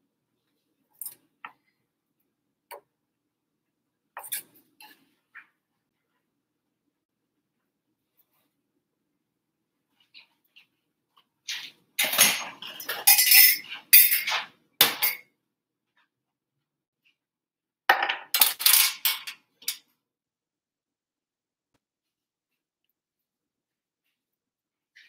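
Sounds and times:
metal spoon clinking on pans: 11.5 - 15.3, 18.0 - 19.9.

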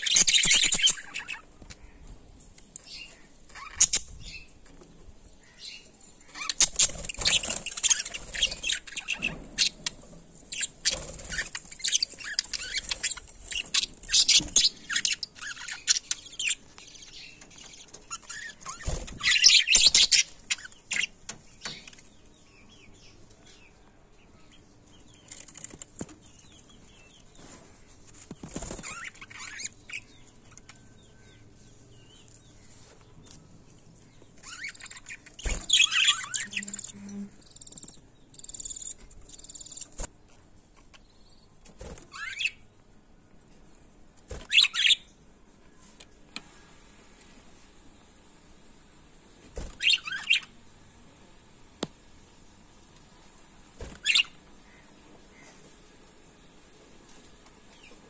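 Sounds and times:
budgerigars chirping and warbling: 0.0 - 2.0, 2.8 - 4.5, 5.4 - 22.1, 28.5 - 31.3, 34.3 - 40.1, 42.0 - 42.6, 44.4 - 45.1, 49.7 - 50.6, 54.0 - 55.5.

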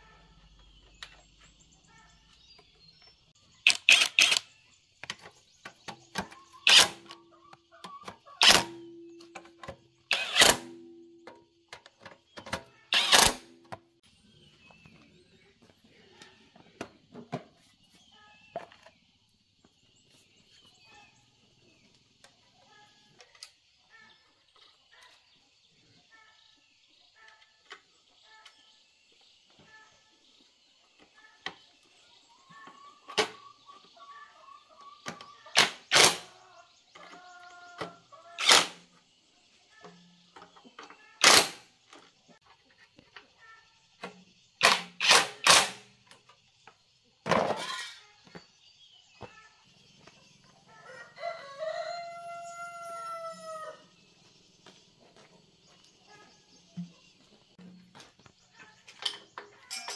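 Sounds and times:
cordless drill bursts: 3.7 - 4.4, 10.1 - 10.5, 12.9 - 13.4, 38.4 - 38.7
chickens clucking faintly: 13.6 - 41.3.

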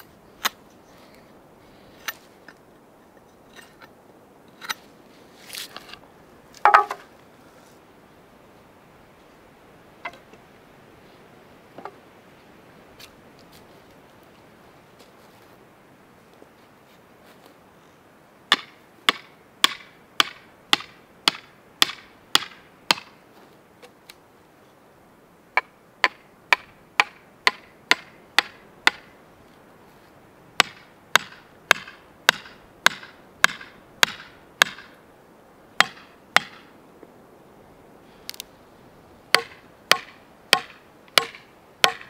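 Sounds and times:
hatchet hammering wooden stakes: 6.6 - 7.0, 18.5 - 23.2, 25.6 - 29.1, 30.6 - 35.0, 35.8 - 36.7, 39.3 - 42.0.

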